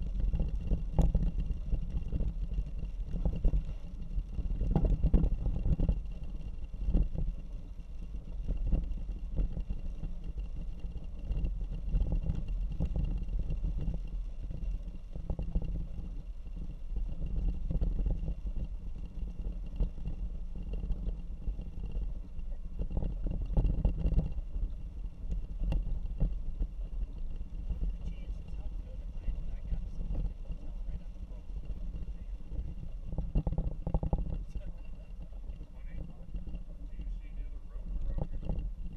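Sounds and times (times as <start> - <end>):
knocks and rattles from rough road: 0.0 - 38.9
vehicle engine and tyres rumbling: 0.0 - 38.9.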